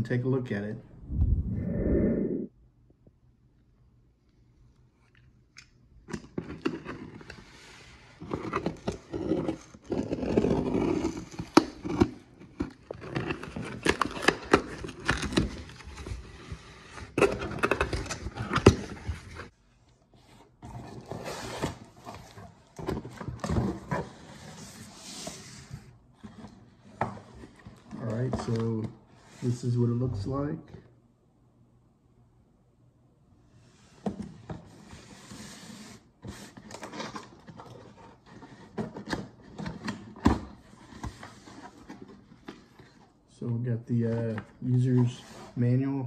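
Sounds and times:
cardboard tearing and rustling: 0:08.2 - 0:16.4.

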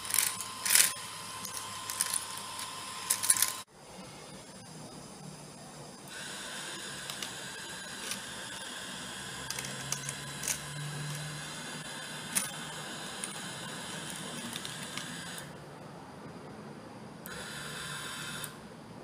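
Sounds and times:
plastic beads clicking: 0:00.0 - 0:03.6, 0:09.5 - 0:11.2
small motor whining: 0:00.0 - 0:03.7, 0:06.1 - 0:15.6, 0:17.3 - 0:18.6.

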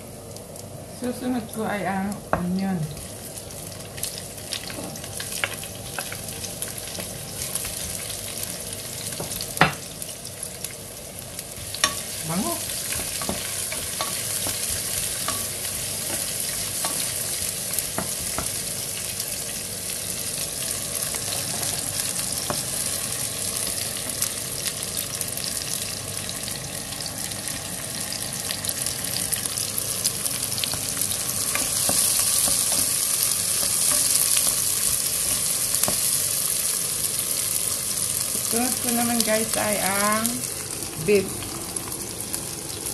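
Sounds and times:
onions sizzling in hot oil: 0:00.0 - 0:42.9
wooden spoon tapping and scraping pan: 0:12.9 - 0:17.1, 0:17.9 - 0:18.6.

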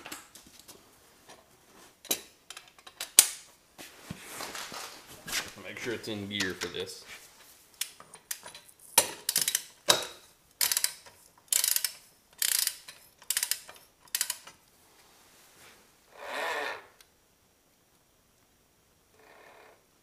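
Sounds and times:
socket ratchet clicking: 0:07.8 - 0:14.6
ratchet rasp: 0:10.6 - 0:14.4.

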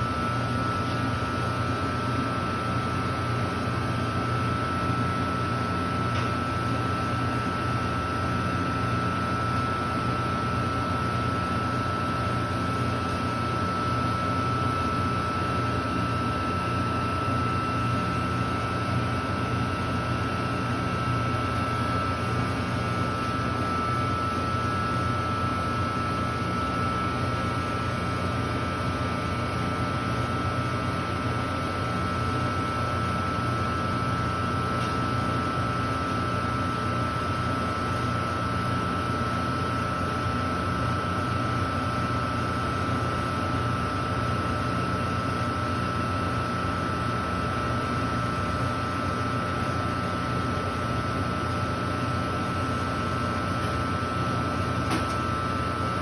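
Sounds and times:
freezer machine hum: 0:00.0 - 0:56.0.

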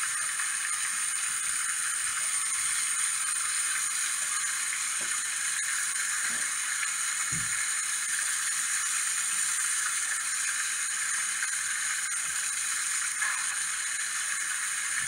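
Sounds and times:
waterfall splashing onto rocks: 0:06.2 - 0:07.8.

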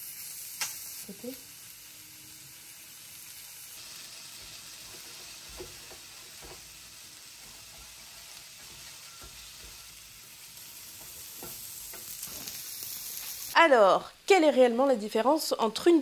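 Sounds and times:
food sizzling on a grill: 0:00.0 - 0:13.7
metal tongs tapping: 0:08.6 - 0:10.0.

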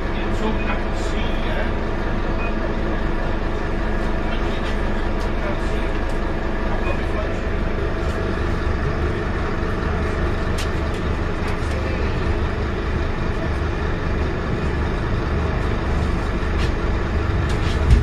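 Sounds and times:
bus diesel engine rumbling: 0:00.0 - 0:18.0
road noise: 0:03.8 - 0:18.0.

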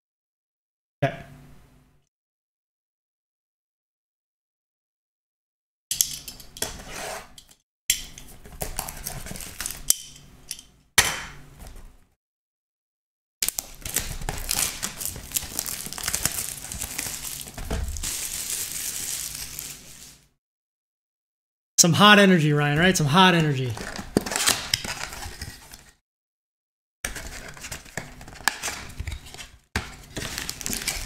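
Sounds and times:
plastic wrap crinkling: 0:13.4 - 0:20.3, 0:30.0 - 0:31.0.

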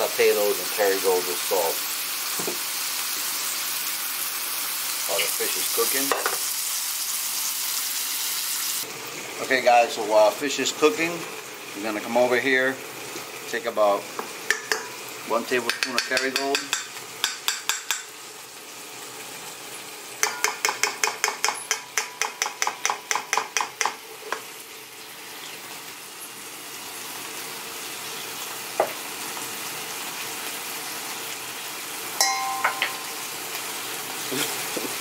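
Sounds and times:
butter sizzling in pan: 0:00.0 - 0:35.0
fork scraping and tapping a wok: 0:14.5 - 0:14.9, 0:15.7 - 0:18.1, 0:20.2 - 0:24.4.

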